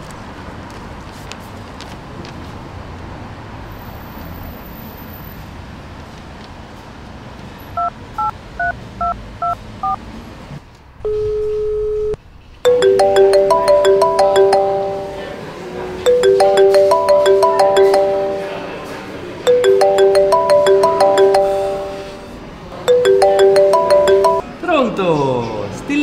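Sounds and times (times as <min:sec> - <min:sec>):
street background noise: 0:00.0 - 0:11.6, 0:12.2 - 0:26.0
touch-tone beeps: 0:12.7 - 0:15.3, 0:16.1 - 0:18.8, 0:19.5 - 0:22.3, 0:22.9 - 0:24.4
ringback tone: 0:12.7 - 0:15.5, 0:16.1 - 0:24.4
smartphone ringtone melody: 0:12.7 - 0:24.5.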